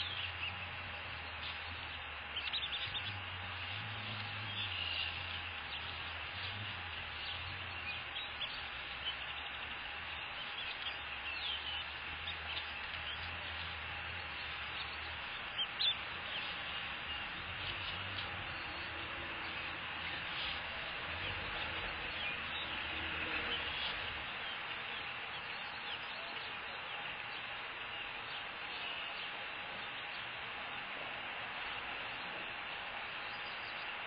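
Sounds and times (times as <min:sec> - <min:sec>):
high bird chirps: 0:00.0 - 0:27.1
low hum: 0:00.0 - 0:34.0
steady hiss: 0:00.0 - 0:34.0.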